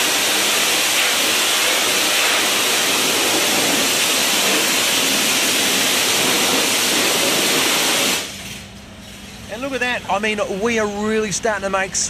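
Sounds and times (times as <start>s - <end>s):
high-pressure water jet spraying: 0.0s - 8.6s.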